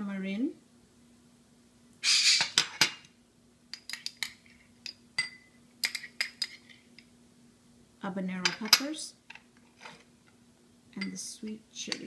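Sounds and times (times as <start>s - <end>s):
metal spoon clinking on ceramic: 3.7s - 6.7s, 11.0s - 12.0s
spoon scraping: 3.7s - 7.0s.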